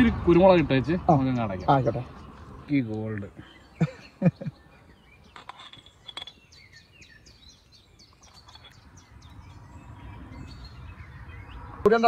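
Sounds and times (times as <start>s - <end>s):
faint bird chirps: 3.4s - 11.7s.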